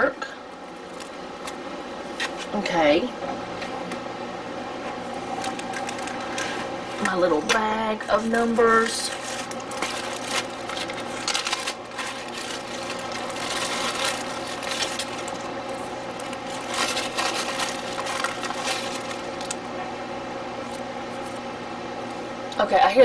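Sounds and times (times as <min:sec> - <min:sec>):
steady low hum: 0:00.0 - 0:23.0
plastic bag crinkling: 0:00.6 - 0:02.5, 0:05.3 - 0:07.1, 0:08.1 - 0:19.7, 0:20.6 - 0:22.3.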